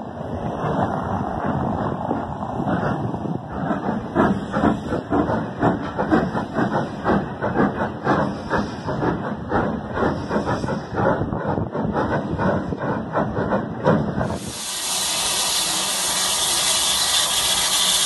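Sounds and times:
steam locomotive exhaust chuffs: 0:00.7 - 0:18.0
steam hissing: 0:14.1 - 0:18.0.

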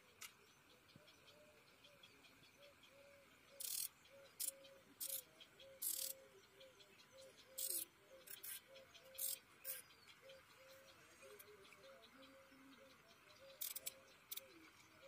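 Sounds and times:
insects chirping: 0:03.6 - 0:06.2, 0:07.6 - 0:09.8, 0:13.5 - 0:14.4.

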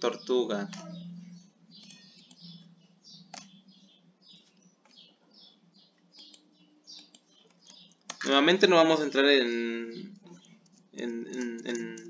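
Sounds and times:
computer keyboard typing: 0:01.7 - 0:05.1, 0:06.1 - 0:09.3, 0:10.0 - 0:12.0.

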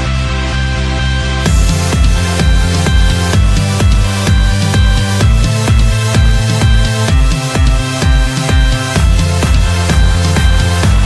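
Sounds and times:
kick drum: 0:01.4 - 0:11.0.

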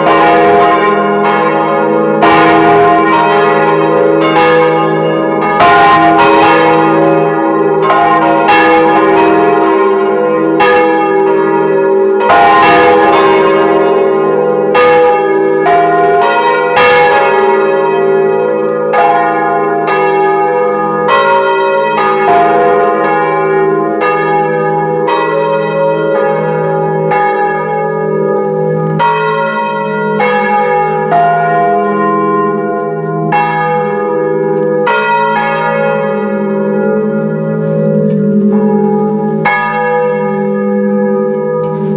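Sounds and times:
church bells ringing: 0:00.0 - 0:41.9
deep bell hum: 0:18.9 - 0:41.9.

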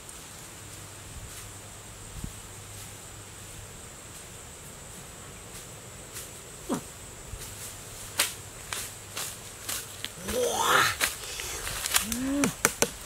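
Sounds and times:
foot crackling on dry leaves: 0:00.0 - 0:13.0
high insect hum: 0:00.0 - 0:13.0
short falling cry: 0:10.2 - 0:12.6.

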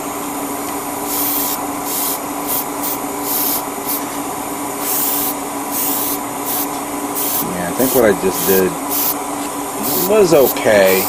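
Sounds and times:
extraction fan hum: 0:00.0 - 0:11.0
airbrush spraying hiss: 0:01.0 - 0:04.1, 0:04.8 - 0:09.2, 0:09.8 - 0:11.0.

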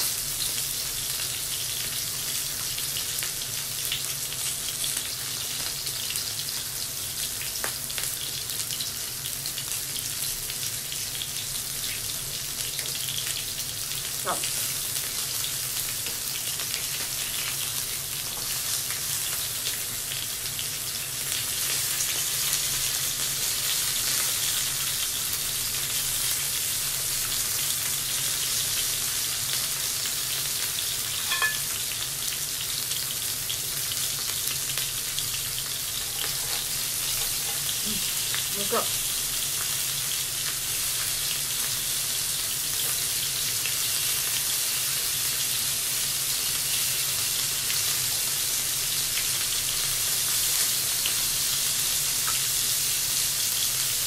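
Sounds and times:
food sizzling on a grill plate: 0:00.0 - 0:54.0.

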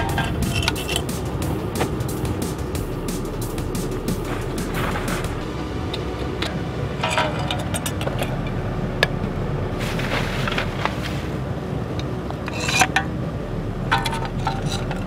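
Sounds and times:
furnace fire and blower fans: 0:00.0 - 0:15.0
cans clinking in metal crucible: 0:05.9 - 0:08.5, 0:13.9 - 0:15.0.

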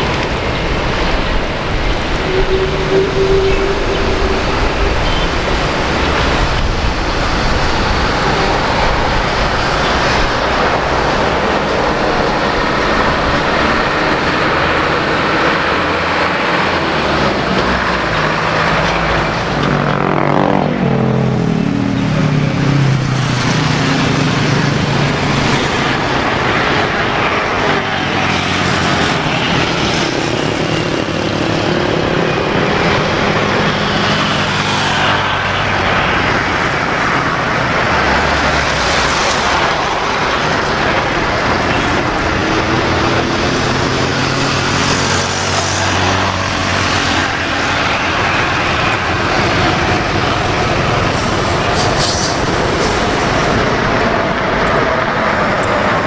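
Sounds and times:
jet engines winding down whine: 0:00.0 - 0:56.0
jet engine rumble and hiss: 0:21.2 - 0:56.0.

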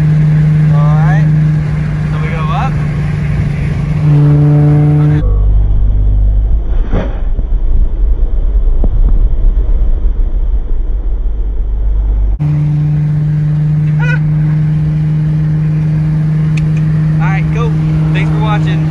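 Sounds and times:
car engine drone: 0:00.0 - 0:18.9
road rumble: 0:00.0 - 0:18.9
thump: 0:06.7 - 0:07.5.

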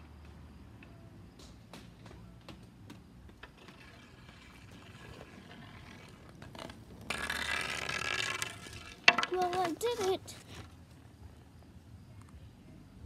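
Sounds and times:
skate wheels rolling on concrete: 0:00.0 - 0:13.0
hockey stick blade on pavement: 0:01.4 - 0:10.8.

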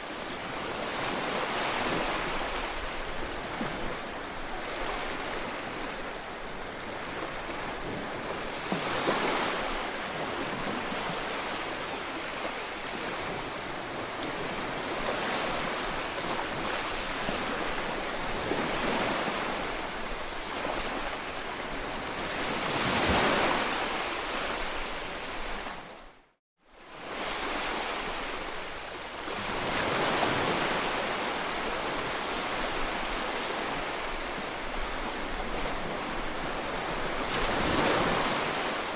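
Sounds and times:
small waves breaking on beach: 0:00.0 - 0:38.9.

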